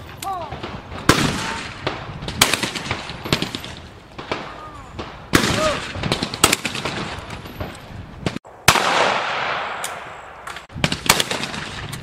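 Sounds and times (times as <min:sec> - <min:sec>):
shotgun blasts with echo: 0:00.4 - 0:12.0.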